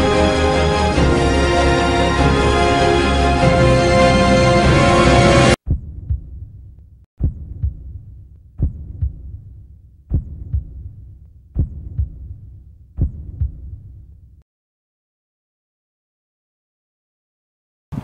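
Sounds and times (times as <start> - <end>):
music: 0.0 - 5.6
heartbeat double thumps: 5.6 - 14.1.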